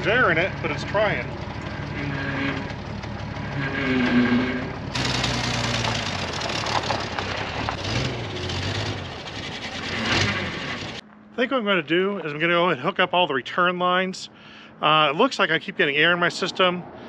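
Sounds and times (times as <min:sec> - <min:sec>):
power steering pump moaning: 0:00.0 - 0:07.2
engine idling: 0:00.0 - 0:11.0.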